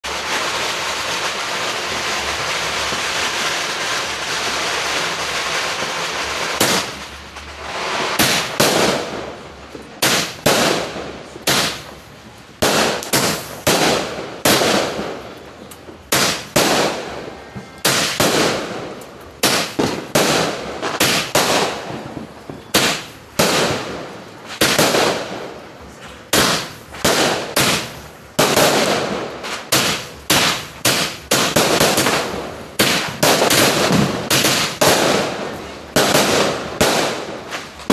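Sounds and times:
firework bangs: 0:00.0 - 0:37.9
firework fuse hiss: 0:00.1 - 0:09.4, 0:10.0 - 0:15.0.

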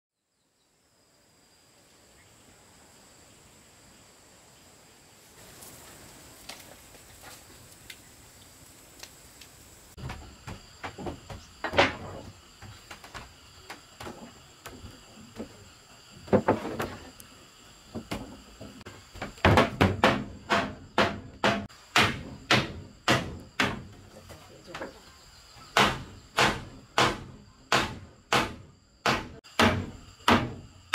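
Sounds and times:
wooden boards knocking: 0:10.0 - 0:15.5, 0:16.2 - 0:17.1, 0:17.9 - 0:24.1, 0:25.8 - 0:30.7.

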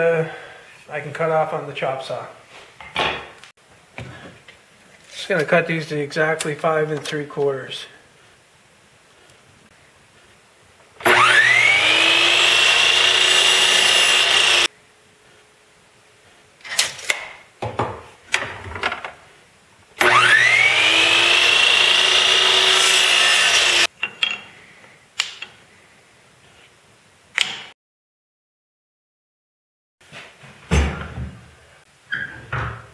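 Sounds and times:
electric chop saw whining: 0:11.0 - 0:14.7, 0:20.0 - 0:23.9.

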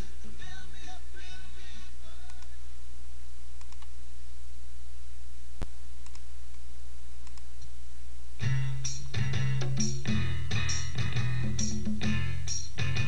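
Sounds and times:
steady low hum: 0:00.0 - 0:13.0
faint clicks: 0:03.6 - 0:03.9, 0:05.6 - 0:06.6, 0:07.2 - 0:07.7
guitar music: 0:08.4 - 0:13.0.

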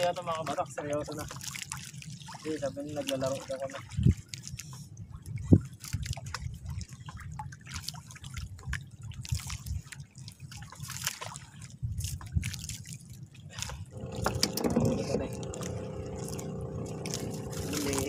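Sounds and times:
water dripping and trickling: 0:00.0 - 0:18.0
waves lapping against boat hull: 0:00.0 - 0:18.0
low rumble: 0:13.7 - 0:18.0.

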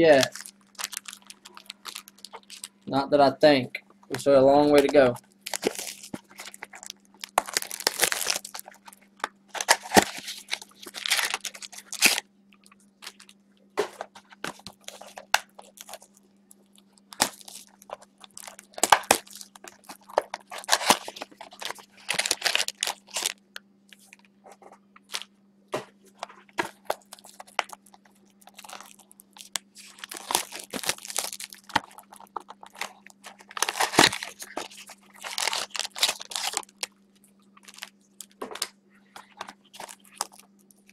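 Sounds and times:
faint steady hum: 0:00.0 - 0:40.9
cards rustling and scraping: 0:04.2 - 0:12.2, 0:13.0 - 0:16.1, 0:17.1 - 0:25.2, 0:26.0 - 0:36.7, 0:37.6 - 0:40.5.

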